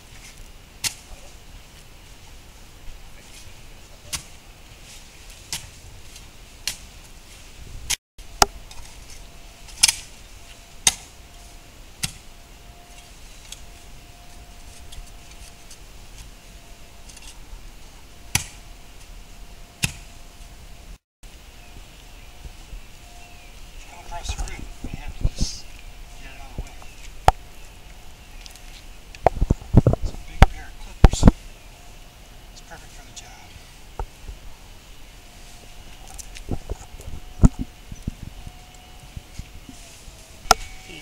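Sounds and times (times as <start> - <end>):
spade chopping into soil: 10.8 - 11.1, 12.0 - 12.2, 18.3 - 18.6, 19.8 - 20.1.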